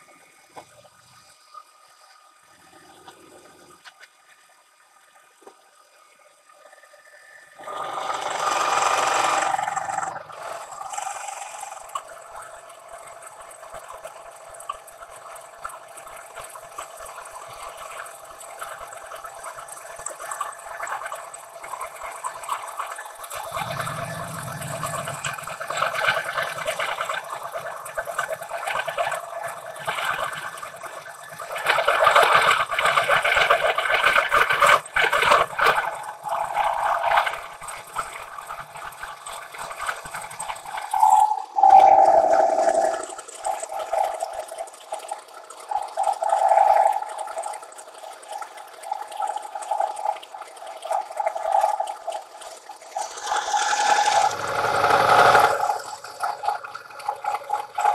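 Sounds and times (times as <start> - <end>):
hiss of flying chips: 52.9 - 56.0.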